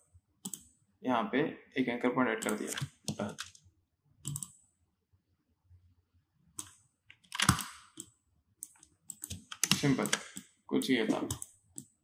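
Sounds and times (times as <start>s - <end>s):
mouse and keyboard clicks: 0.4s - 0.7s, 4.2s - 4.6s.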